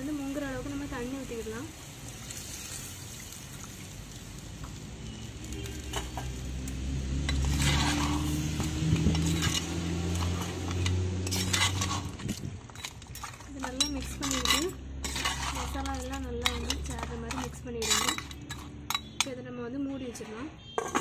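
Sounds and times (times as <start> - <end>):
water sizzling in hot pot: 0.0 - 18.7
spoon scraping clay pot: 7.2 - 19.4.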